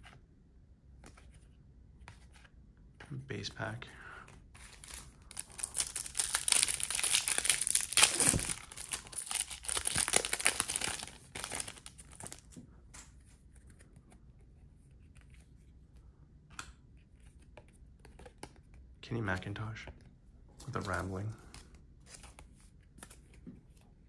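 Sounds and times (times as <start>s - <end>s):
foil wrapper tearing and crinkling: 4.7s - 12.4s.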